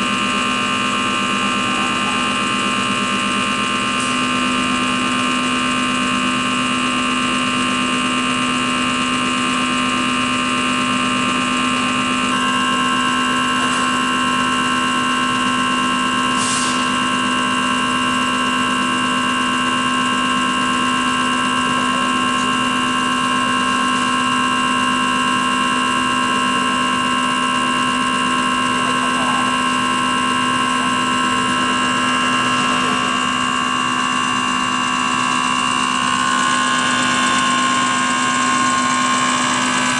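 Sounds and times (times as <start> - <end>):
test bench motor and pump hum: 0.0 - 39.9
high whining tones: 29.5 - 39.9.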